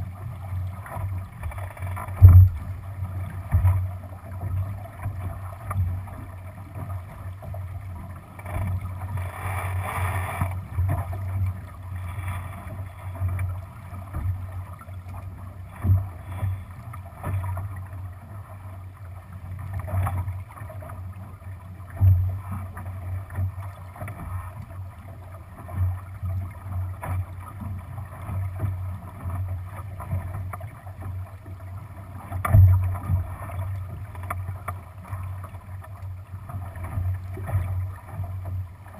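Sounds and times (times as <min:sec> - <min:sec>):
water rushing along boat hull: 0:00.0 - 0:38.9
heavy thumps on hull: 0:02.0 - 0:02.7.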